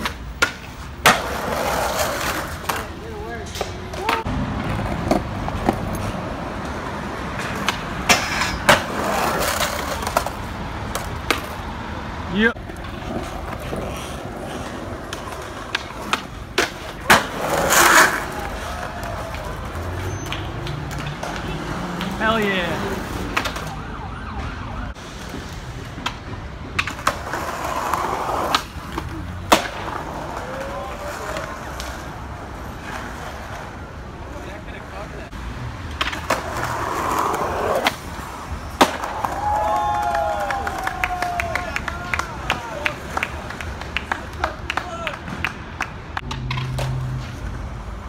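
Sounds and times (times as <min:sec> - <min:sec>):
skateboard wheels rolling on concrete: 0:00.0 - 0:48.0
skateboard cracks of a trick: 0:12.7 - 0:21.4, 0:25.2 - 0:32.1, 0:35.9 - 0:45.6.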